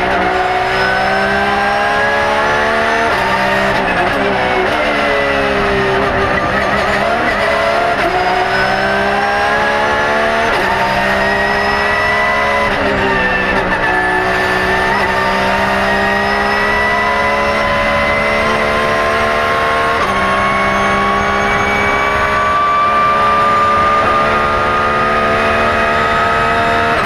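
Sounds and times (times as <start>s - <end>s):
racing engine at full throttle: 0.0s - 27.0s.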